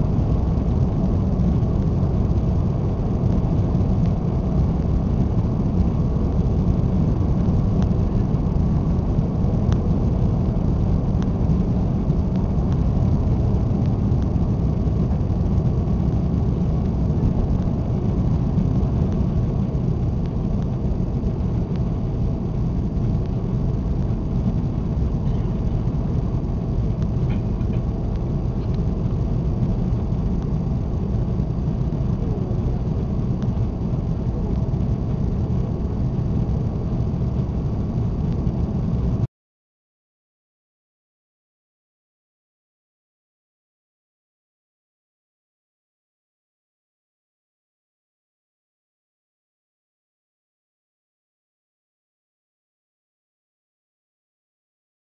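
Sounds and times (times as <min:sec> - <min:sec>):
jet engines roaring in cabin: 0:00.0 - 0:39.3.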